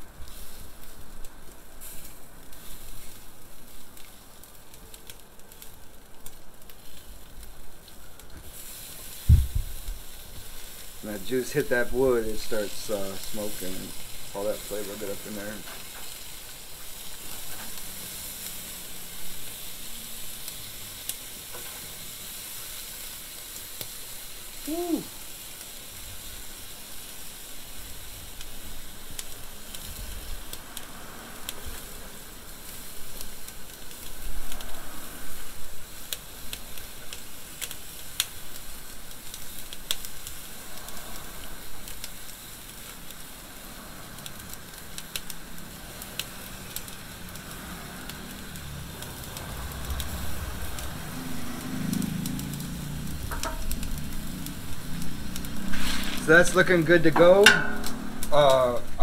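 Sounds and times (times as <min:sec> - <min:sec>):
sauce sizzling on fire: 0:00.0 - 0:59.0
sharp pops: 0:09.2 - 0:10.0, 0:55.0 - 0:58.6.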